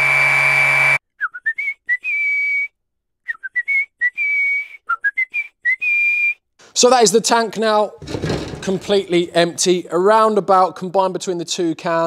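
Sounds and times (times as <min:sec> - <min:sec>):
person whistling a tune: 0:01.1 - 0:06.4.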